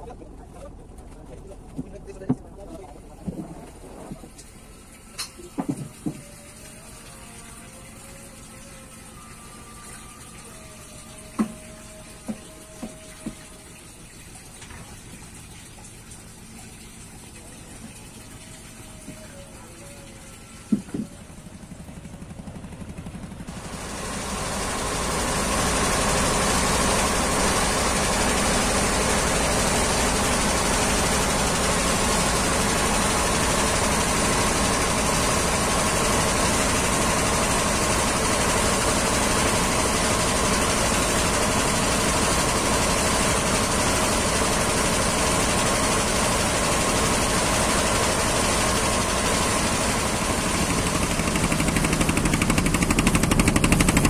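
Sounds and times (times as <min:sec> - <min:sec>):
boat engine droning: 0:00.0 - 0:14.4, 0:17.3 - 0:54.0
brief knock: 0:05.2 - 0:06.2, 0:11.4 - 0:11.6.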